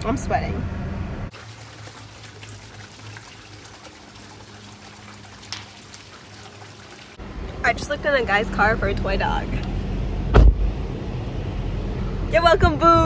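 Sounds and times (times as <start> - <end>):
water trickling into pond: 1.3 - 7.3.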